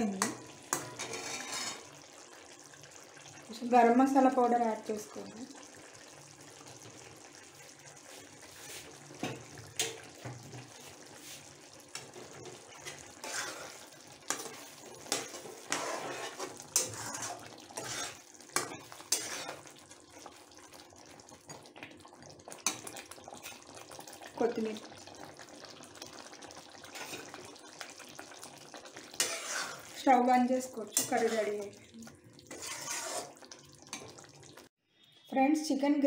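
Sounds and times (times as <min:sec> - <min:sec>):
metal spatula scraping a pan: 0:00.3 - 0:02.1, 0:10.8 - 0:19.8, 0:26.9 - 0:27.5, 0:29.0 - 0:31.8, 0:32.4 - 0:34.1.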